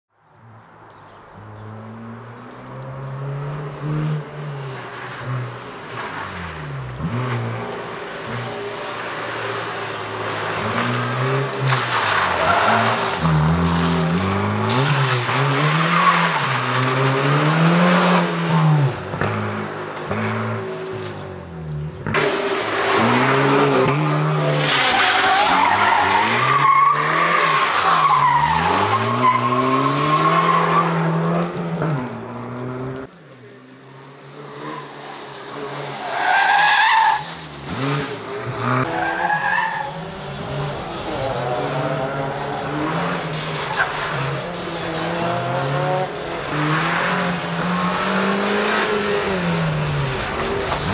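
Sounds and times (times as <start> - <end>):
car engine revving hard: 40.0 - 50.9.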